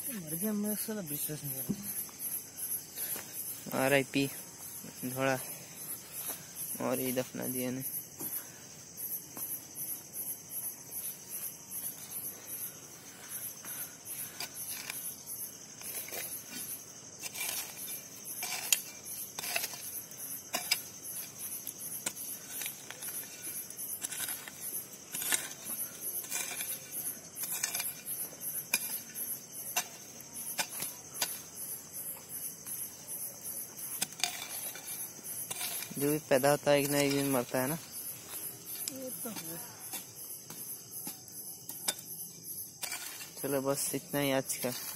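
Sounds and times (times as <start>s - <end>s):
crickets chirping: 0.0s - 44.9s
hoe chopping and scraping dirt: 11.0s - 43.6s, 44.5s - 44.9s.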